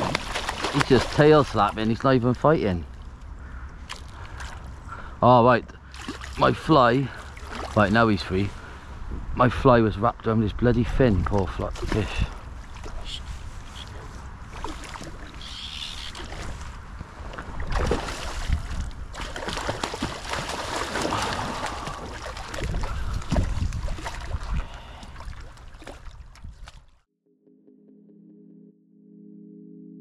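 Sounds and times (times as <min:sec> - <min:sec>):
fish thrashing and splashing: 0:00.0 - 0:01.6, 0:07.2 - 0:07.8, 0:14.5 - 0:27.0
wind rumble on microphone: 0:08.1 - 0:14.6, 0:16.3 - 0:19.2, 0:21.2 - 0:26.9.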